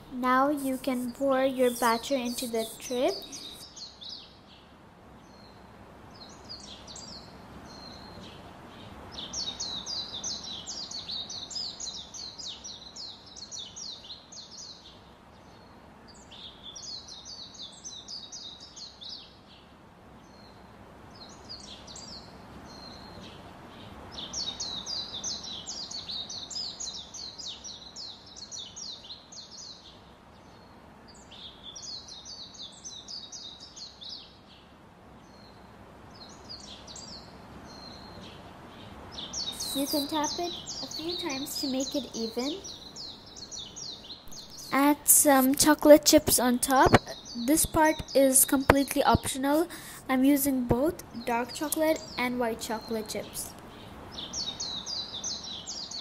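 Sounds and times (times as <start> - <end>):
small bird chirping song: 0.0 - 56.0.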